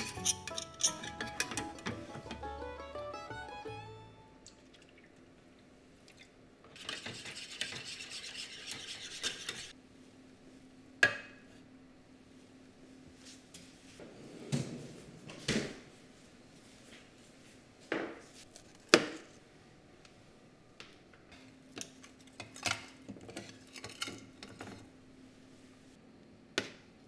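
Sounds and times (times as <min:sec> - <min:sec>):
stirring in a metal tin: 0:00.0 - 0:01.8
utensils clicking and knocking: 0:00.0 - 0:02.4.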